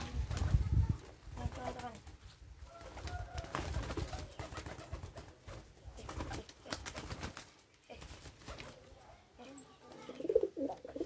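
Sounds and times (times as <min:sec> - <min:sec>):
wings flapping: 0:00.0 - 0:09.0
pigeons cooing: 0:09.9 - 0:11.0.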